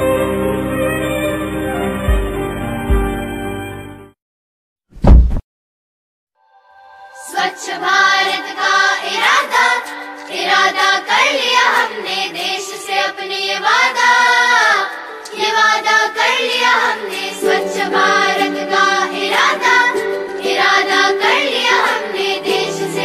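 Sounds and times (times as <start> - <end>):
song with singing voices: 6.7 - 23.0.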